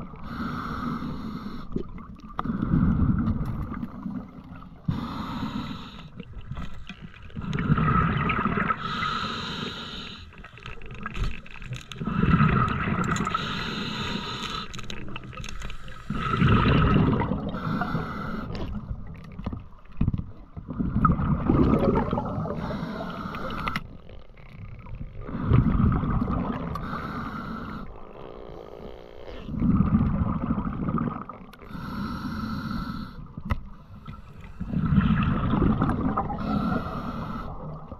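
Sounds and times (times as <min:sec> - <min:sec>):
diver breathing underwater: 0:00.2 - 0:06.3, 0:07.4 - 0:10.6, 0:12.0 - 0:19.0, 0:21.1 - 0:24.0, 0:25.2 - 0:37.9
water gurgling: 0:06.2 - 0:09.1, 0:10.4 - 0:14.0, 0:14.8 - 0:28.6, 0:29.3 - 0:31.9, 0:34.6 - 0:37.9.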